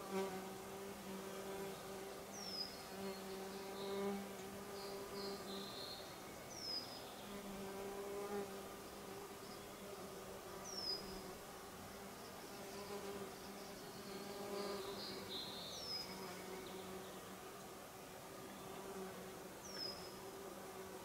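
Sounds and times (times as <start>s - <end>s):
insect buzzing: 0.0s - 17.6s.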